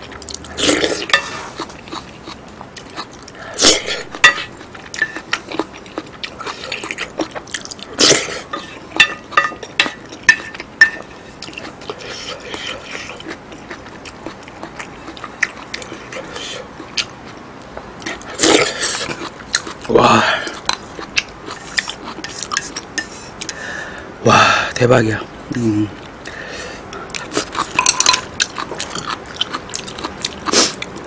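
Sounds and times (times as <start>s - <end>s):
chewing and wet mouth sounds: 0.0s - 17.4s, 18.0s - 23.6s, 25.2s - 31.0s
spoon scraping and clinking plate: 1.0s - 1.5s, 4.2s - 5.4s, 8.5s - 11.1s, 27.5s - 28.3s.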